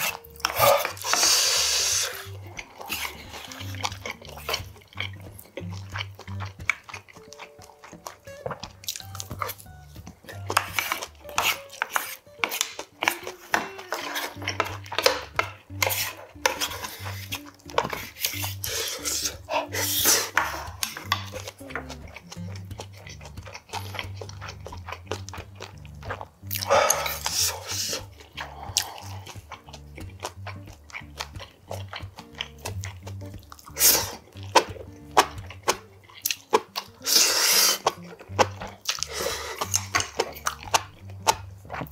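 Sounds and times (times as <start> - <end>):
background music with bass: 0.0 - 41.9
chewing: 0.0 - 41.9
spoon scraping metal lunchbox: 10.3 - 21.6.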